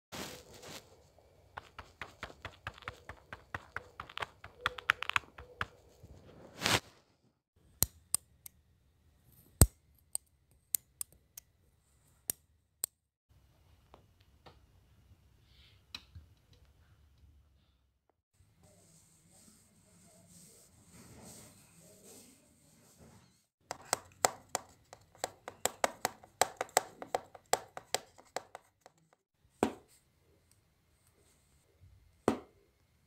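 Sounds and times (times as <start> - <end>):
scrub brush crackling: 1.5 - 5.9.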